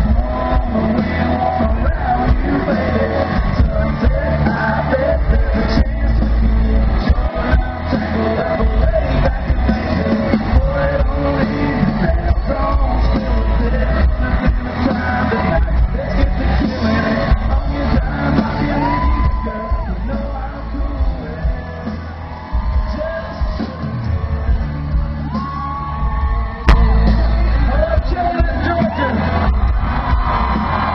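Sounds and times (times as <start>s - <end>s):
man singing into a microphone: 0.0s - 29.3s
live country band playing: 0.0s - 30.9s.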